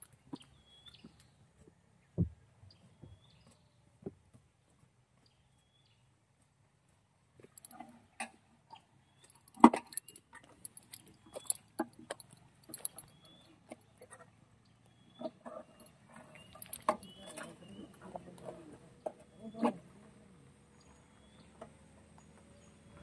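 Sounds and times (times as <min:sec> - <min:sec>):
metallic clinks and knocks of tools: 0:07.5 - 0:07.8, 0:09.2 - 0:13.5, 0:15.7 - 0:17.5.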